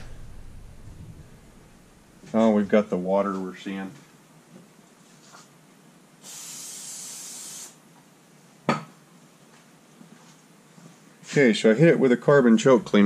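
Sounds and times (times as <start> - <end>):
aerosol spray hiss: 6.2 - 7.8.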